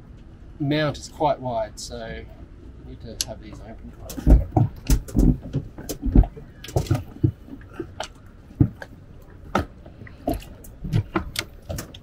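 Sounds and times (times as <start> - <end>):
knocks and clicks of outboard motor: 3.6 - 12.0.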